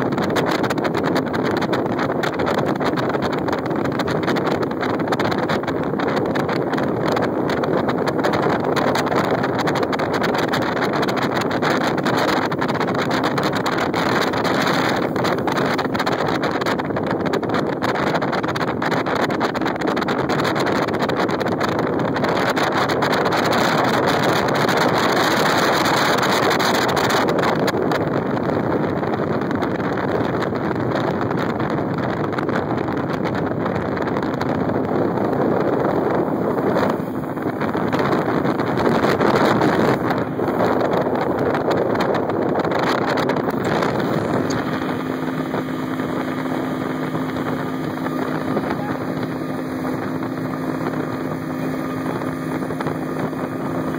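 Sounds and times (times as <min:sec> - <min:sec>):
boat motor: 0:00.0 - 0:53.9
water noise: 0:00.0 - 0:53.9
wind buffeting microphone: 0:00.0 - 0:53.9.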